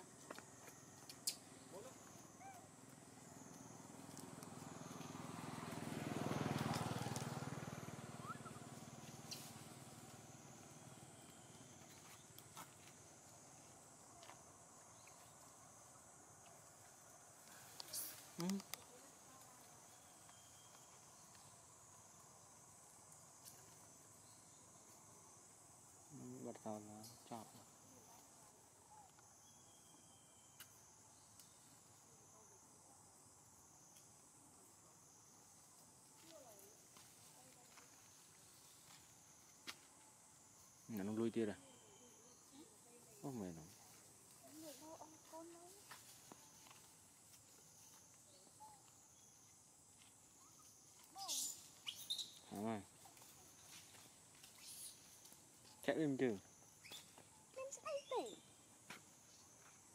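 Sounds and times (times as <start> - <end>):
faint high insect drone: 0.0 - 59.9
motor vehicle passing: 3.8 - 11.3.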